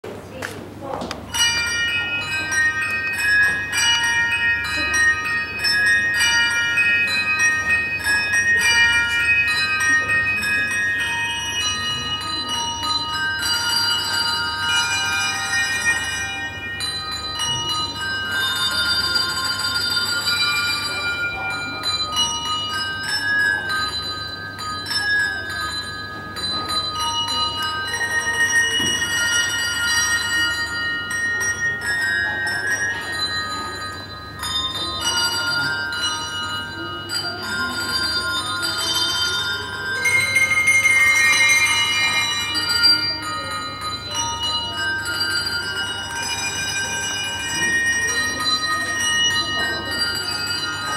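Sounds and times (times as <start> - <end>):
handbell ensemble playing a melody: 0.2 - 50.9.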